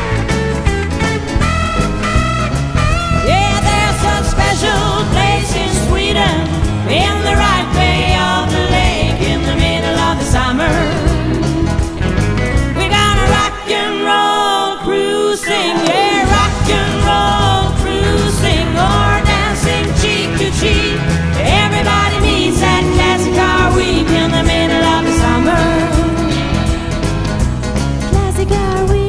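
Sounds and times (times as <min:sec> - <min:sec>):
backing music with heavy bass: 0:00.0 - 0:13.8, 0:15.8 - 0:29.0
person singing: 0:03.2 - 0:11.8, 0:12.8 - 0:27.3.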